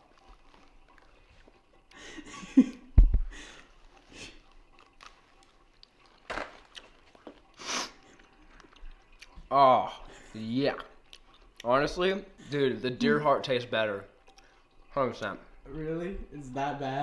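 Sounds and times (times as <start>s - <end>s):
person chewing crunchy food: 0.0s - 2.0s, 3.5s - 9.5s, 10.8s - 11.7s.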